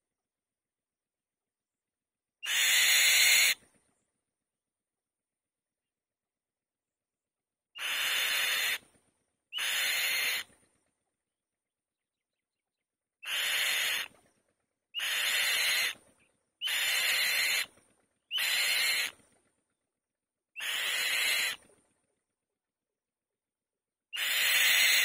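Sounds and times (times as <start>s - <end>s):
bird rasping calls: 2.4s - 3.6s, 7.8s - 8.8s, 9.6s - 10.5s, 13.2s - 14.2s, 15.0s - 16.0s, 16.6s - 17.7s, 18.3s - 19.2s, 20.6s - 21.6s, 24.1s - 25.0s.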